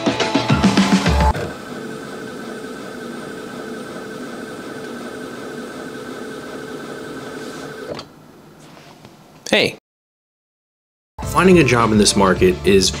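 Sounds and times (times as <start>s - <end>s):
desk lift motor humming: 0.4s - 8.5s.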